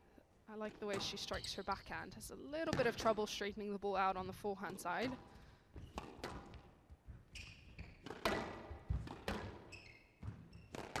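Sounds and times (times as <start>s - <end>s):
squash ball hitting racquets: 0.7s - 1.5s, 4.7s - 11.0s
shoes squeaking on court: 0.8s - 2.1s, 5.7s - 11.0s.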